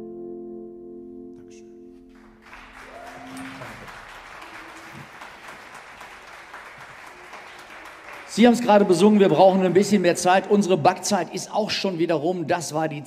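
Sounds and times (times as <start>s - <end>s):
keyboard and acoustic guitar note: 0.0s - 2.4s
audience applause: 2.1s - 10.8s.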